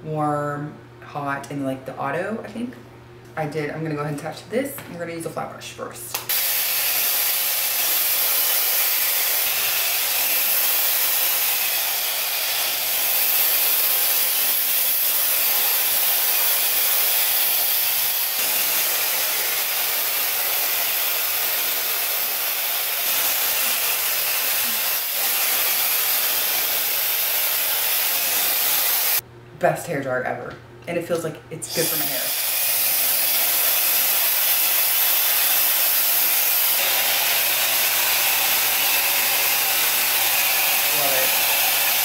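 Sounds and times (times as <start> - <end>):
hair dryer blowing: 6.2 - 29.2, 31.7 - 42.0.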